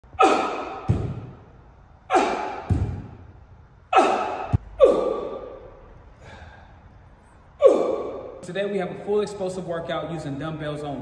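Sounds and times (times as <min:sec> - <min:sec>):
man exhaling forcefully: 0:03.9 - 0:06.8.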